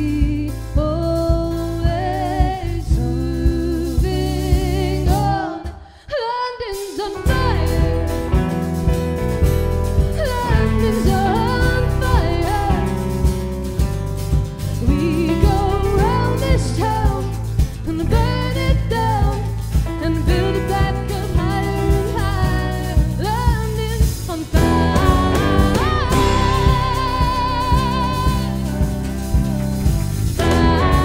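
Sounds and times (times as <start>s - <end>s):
bass guitar: 0.0s - 5.6s, 7.0s - 31.0s
woman singing: 0.0s - 8.6s, 10.0s - 13.4s, 14.7s - 31.0s
acoustic guitar: 6.9s - 31.0s
electric guitar: 7.0s - 31.0s
keyboard: 7.0s - 31.0s
drum beat: 7.3s - 31.0s.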